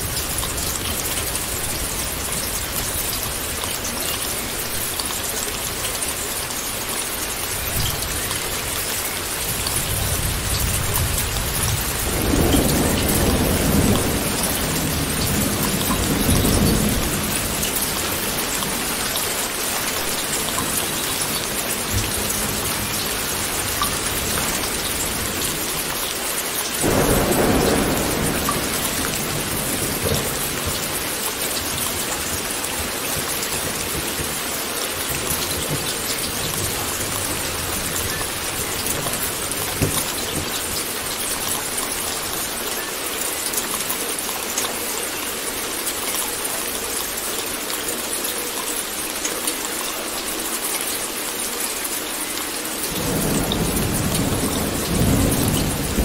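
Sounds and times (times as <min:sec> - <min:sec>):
steady rain falling: 0:00.0 - 0:56.0
thunder rumbling: 0:09.5 - 0:19.4, 0:26.8 - 0:41.7, 0:52.9 - 0:56.0.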